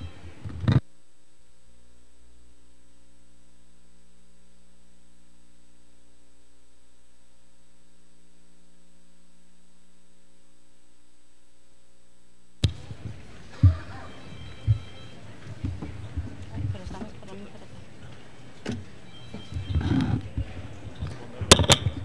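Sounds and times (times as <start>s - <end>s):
microphone handling thumps: 0.0s - 0.9s
electrical hum: 0.0s - 22.0s.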